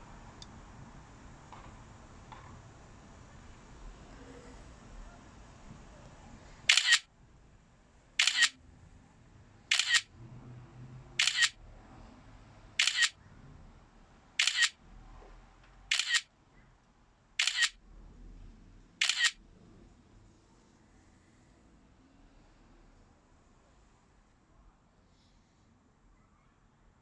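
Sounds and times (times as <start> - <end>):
camera shutter double click: 6.7 - 7.0, 8.2 - 8.6, 9.7 - 10.1, 11.2 - 11.6, 12.8 - 13.2, 14.4 - 14.8, 15.9 - 16.3, 17.4 - 17.8, 19.0 - 19.4.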